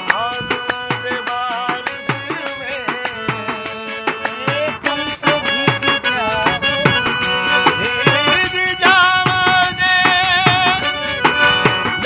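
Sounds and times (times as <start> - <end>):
frame drum beat: 0.0 - 12.0
harmonium chords and melody: 0.0 - 12.0
person singing with vibrato: 0.0 - 12.0.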